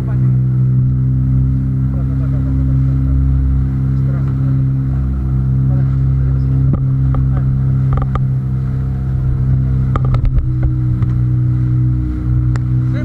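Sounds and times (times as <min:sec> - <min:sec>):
boat engine humming: 0:00.0 - 0:13.0
sharp clicks and knocks: 0:06.7 - 0:08.3, 0:09.9 - 0:11.2.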